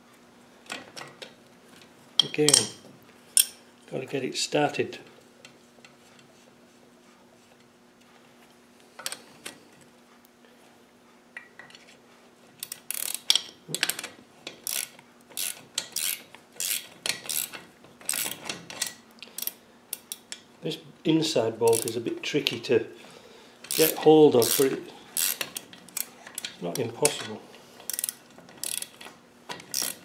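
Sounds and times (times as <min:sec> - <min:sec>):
spanner scraping: 0:12.6 - 0:20.3, 0:21.7 - 0:22.0, 0:23.7 - 0:30.0
spanner clicking on nut: 0:12.6 - 0:20.4, 0:21.7 - 0:22.0, 0:23.7 - 0:27.2, 0:27.9 - 0:30.0.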